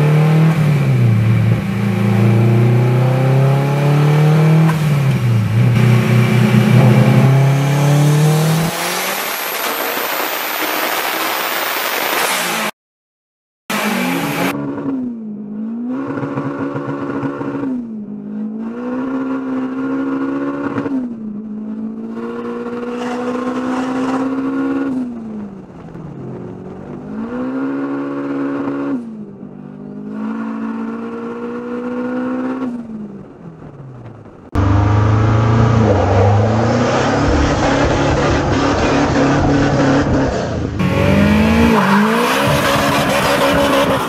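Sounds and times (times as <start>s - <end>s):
rough full-throttle engine rev: 0.0s - 11.6s, 34.6s - 44.0s
car engine accelerating: 0.0s - 12.7s, 13.7s - 44.0s.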